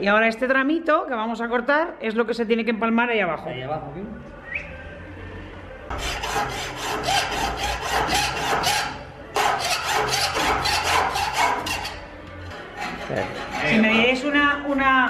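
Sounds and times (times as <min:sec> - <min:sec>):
hacksaw cutting metal tube: 0:05.9 - 0:14.1.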